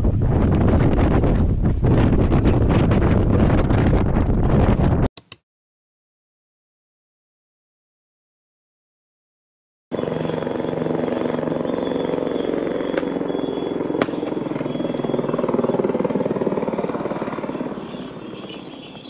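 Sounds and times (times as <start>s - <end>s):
sharp clicks: 5.2s - 5.4s
steady engine drone: 9.9s - 19.0s.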